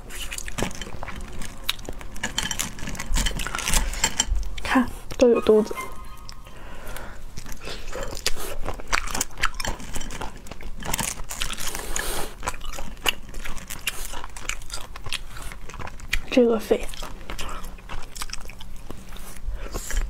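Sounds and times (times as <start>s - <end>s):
chewing: 0.0s - 20.0s
crayfish shells cracking: 6.9s - 19.0s.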